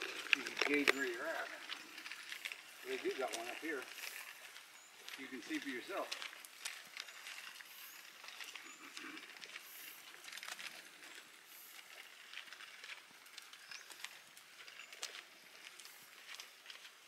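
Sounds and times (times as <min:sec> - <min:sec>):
soft footsteps on forest trail: 0:00.0 - 0:17.0.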